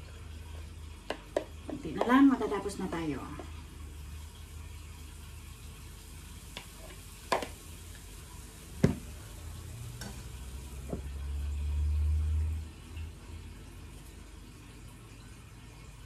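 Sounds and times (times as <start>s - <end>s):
batter sizzling in frying pan: 0.0s - 12.4s.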